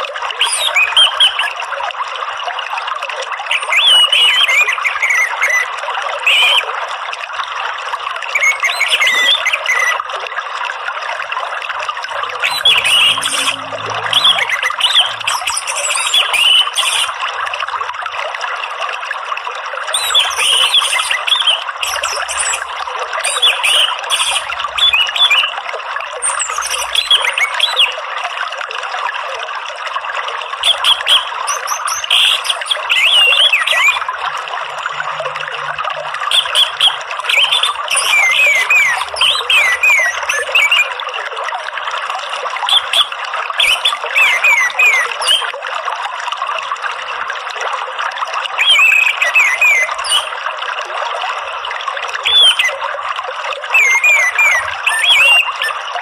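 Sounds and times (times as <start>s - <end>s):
running water trickling: 0.0s - 56.0s
bird song whistled notes: 8.4s - 10.0s, 12.4s - 17.1s, 30.6s - 34.1s, 36.3s - 40.9s, 43.6s - 45.4s, 48.6s - 50.3s, 53.7s - 55.8s.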